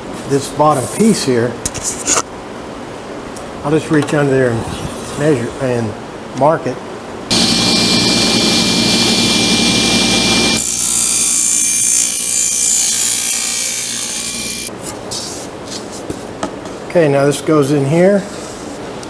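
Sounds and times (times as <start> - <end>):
table saw cutting plywood: 7.3 - 14.7.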